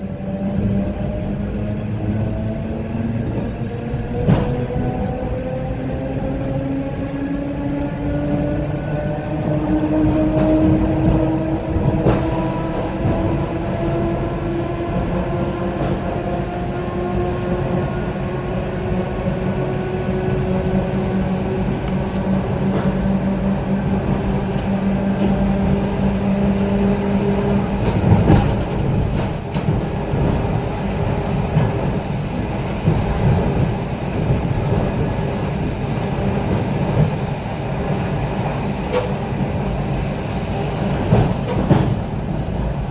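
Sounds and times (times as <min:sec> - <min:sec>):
train wheels rumbling on rail: 0:00.0 - 0:42.9
clacks over rail joints: 0:27.3 - 0:35.7, 0:36.4 - 0:40.0, 0:40.9 - 0:42.1.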